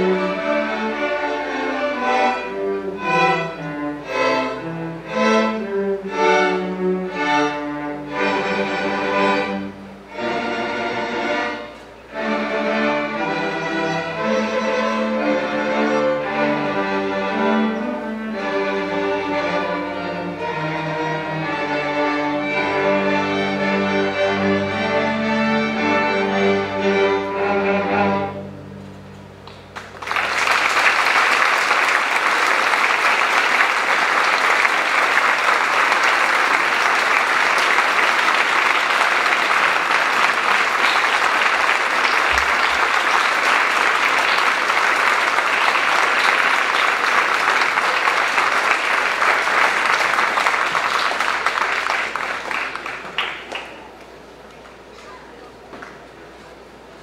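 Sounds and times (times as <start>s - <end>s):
string orchestra playing: 0.0s - 53.3s
audience applauding: 29.4s - 54.2s.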